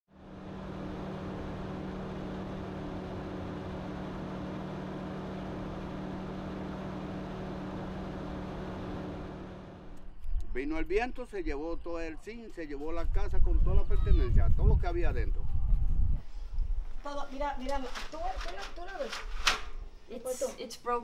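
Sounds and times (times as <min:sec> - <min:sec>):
low mechanical hum: 0:00.1 - 0:10.1.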